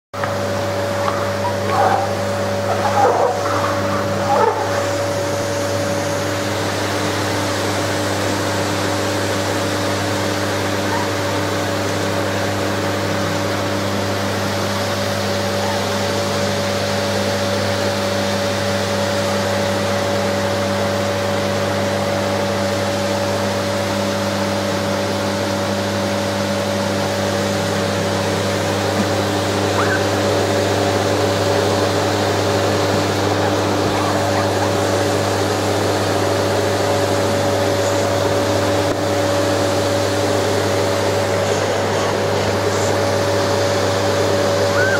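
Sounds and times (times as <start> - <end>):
vacuum cleaner running: 0.2 - 44.9
puppy crying: 1.0 - 4.9, 10.8 - 11.2, 15.5 - 16.0, 29.7 - 30.3, 33.4 - 34.9, 44.7 - 44.9.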